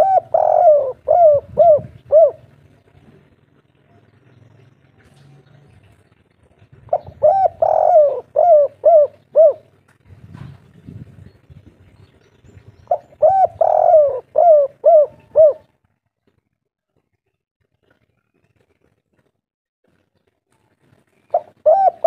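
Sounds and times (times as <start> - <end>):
dove cooing: 0.0 - 4.2, 6.6 - 9.8, 12.9 - 15.8, 21.2 - 22.0.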